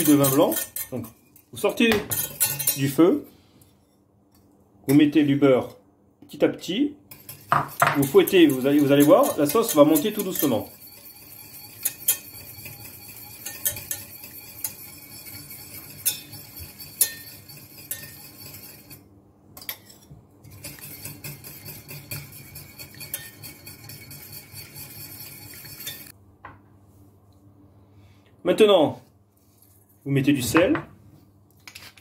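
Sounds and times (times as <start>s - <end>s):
whisk scraping a metal saucepan: 0.0s - 3.3s, 7.1s - 26.2s.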